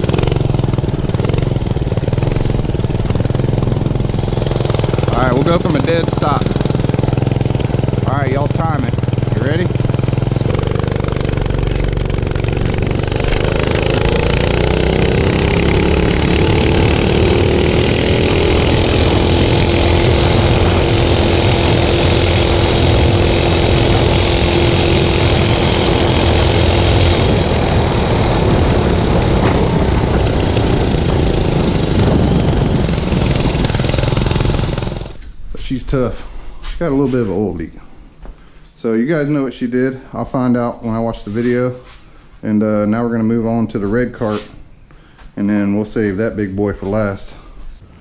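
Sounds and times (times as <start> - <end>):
small engine revving: 0.0 - 35.4
wind noise: 0.0 - 37.6.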